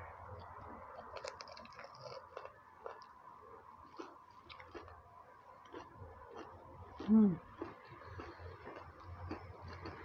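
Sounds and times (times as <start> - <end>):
crunching and chewing: 0.9 - 3.2, 3.8 - 10.0.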